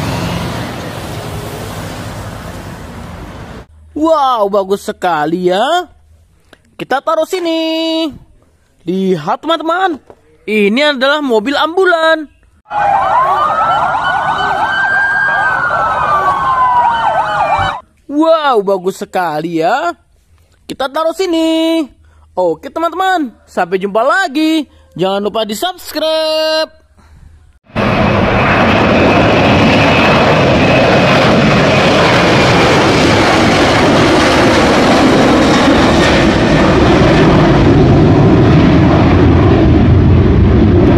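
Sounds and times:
jet airliner taking off: 0:00.0 - 0:04.0, 0:12.7 - 0:17.8, 0:27.7 - 0:40.9
high jet whine: 0:00.0 - 0:04.1, 0:12.7 - 0:17.8, 0:27.7 - 0:40.9
ambulance sirens yelping: 0:12.7 - 0:17.8
siren wailing: 0:12.7 - 0:17.8.

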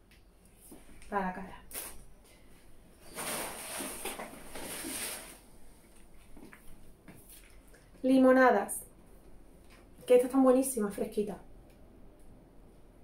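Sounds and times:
grocery items rustling: 0:03.0 - 0:07.6.

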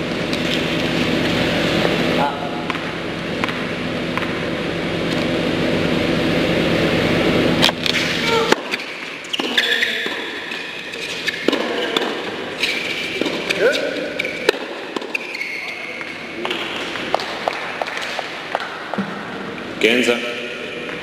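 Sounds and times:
steady hall hum: 0:00.0 - 0:21.0
tennis shoes squeaking on court: 0:07.9 - 0:17.1.

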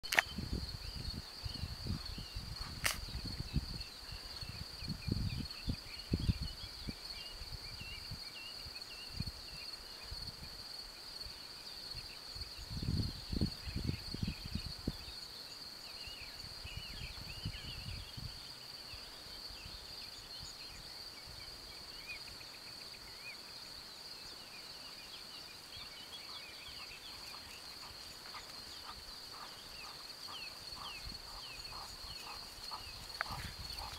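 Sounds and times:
crickets chirring: 0:00.0 - 0:33.9
wind buffeting microphone: 0:00.2 - 0:08.2, 0:12.5 - 0:15.1, 0:16.4 - 0:18.4, 0:26.9 - 0:33.9.

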